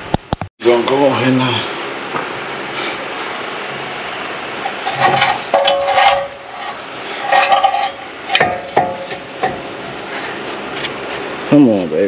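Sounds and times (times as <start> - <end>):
squeaky metal scraping: 4.6 - 10.4.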